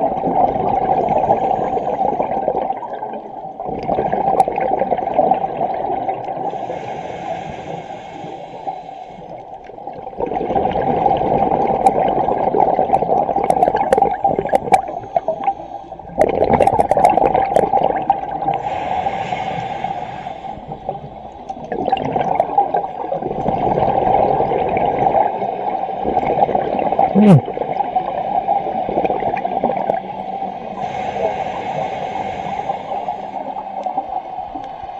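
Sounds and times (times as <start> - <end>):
diver's bubbles gurgling: 0.0 - 6.8, 9.6 - 18.6, 20.7 - 30.1.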